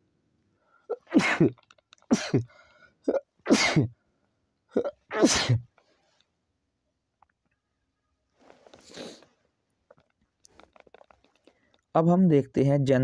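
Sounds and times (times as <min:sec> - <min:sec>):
man sneezing: 0:00.9 - 0:02.5, 0:03.1 - 0:03.9, 0:04.8 - 0:05.7
catch of breath: 0:02.4 - 0:03.0.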